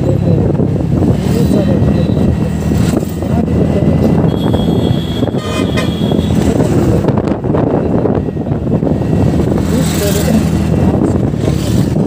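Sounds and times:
wind rush: 0:00.0 - 0:12.0
vehicle horn tooting: 0:04.2 - 0:06.5.

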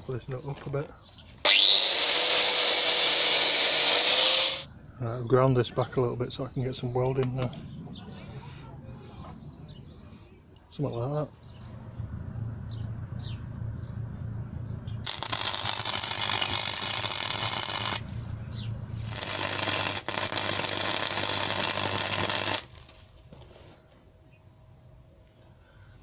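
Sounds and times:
low steady hum: 0:04.6 - 0:26.0
welder arc crackling: 0:15.0 - 0:18.2, 0:19.0 - 0:23.1.

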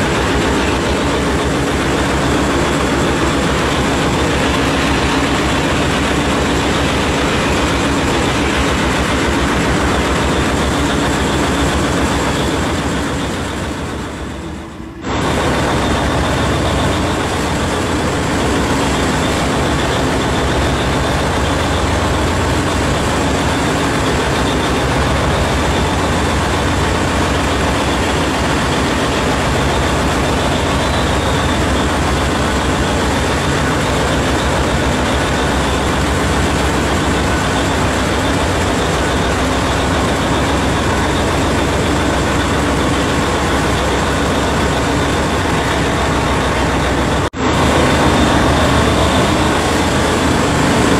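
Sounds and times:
heavy mining machinery roar: 0:00.0 - 0:50.9.

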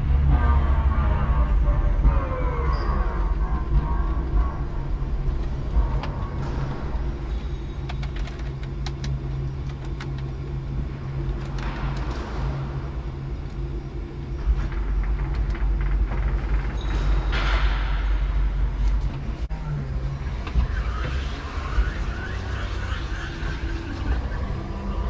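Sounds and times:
forklift low hum and rumble: 0:00.0 - 0:25.0.

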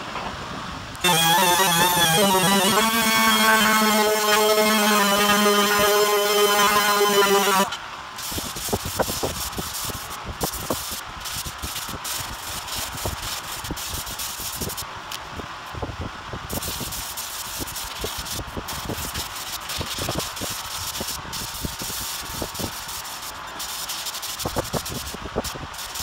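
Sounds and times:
power sander whine: 0:01.0 - 0:07.8
sanding block scratching: 0:01.0 - 0:14.8, 0:16.5 - 0:26.0.

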